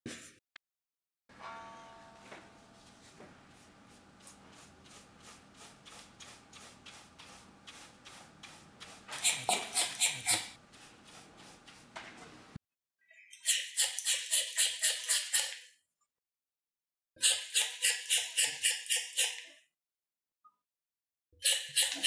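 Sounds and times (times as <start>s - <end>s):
wire brush scrubbing: 2.9s - 12.5s.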